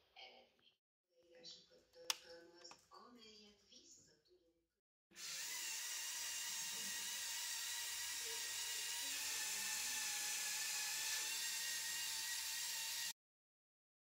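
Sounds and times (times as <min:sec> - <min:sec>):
toy car electric motor whining: 0:05.2 - 0:13.2.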